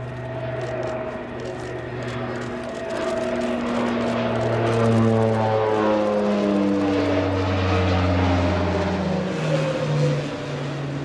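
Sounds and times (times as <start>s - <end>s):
turboprop aircraft passing overhead: 0.0s - 11.0s.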